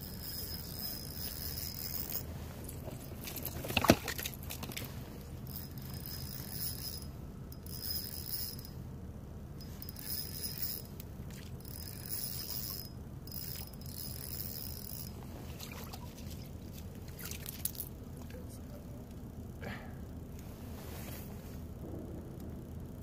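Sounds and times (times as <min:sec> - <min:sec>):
fishing reel whirring: 0:00.0 - 0:02.3, 0:05.4 - 0:08.8, 0:09.6 - 0:11.0, 0:11.6 - 0:18.0
low steady rumble: 0:00.0 - 0:23.0.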